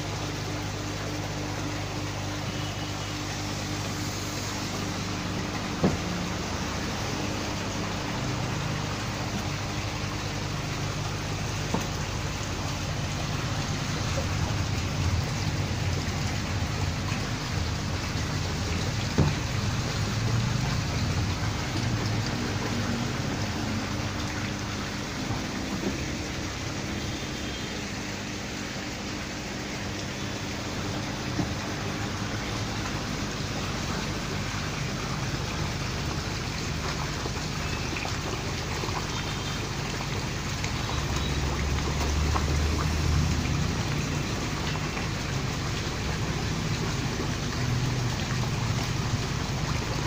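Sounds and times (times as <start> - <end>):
low machine hum: 0.0 - 50.0
water rushing and spattering: 0.0 - 50.0.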